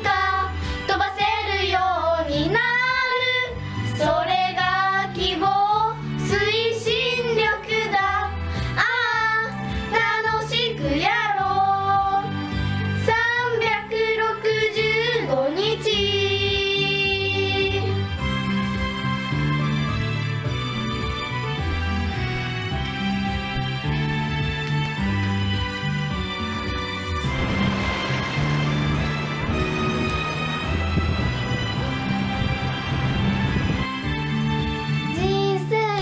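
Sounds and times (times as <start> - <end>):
young girls singing pop song: 0.0 - 18.1, 35.0 - 36.0.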